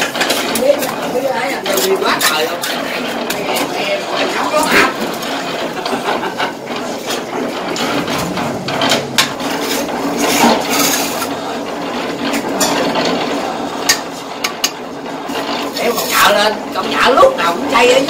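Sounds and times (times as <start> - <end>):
trowel scraping mortar on bricks: 0.0 - 11.4.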